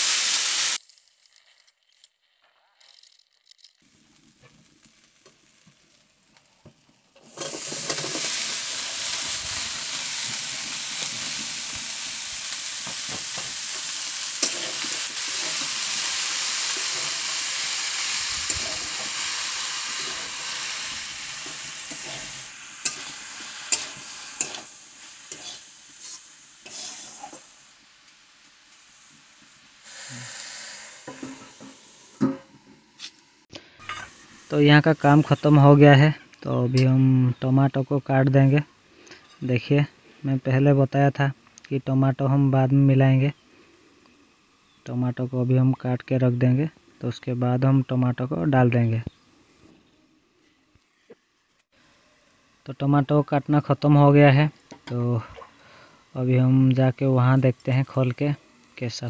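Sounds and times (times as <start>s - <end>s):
vegetables sizzling in hot oil: 0.0s - 2.2s, 2.8s - 32.2s, 32.8s - 35.9s.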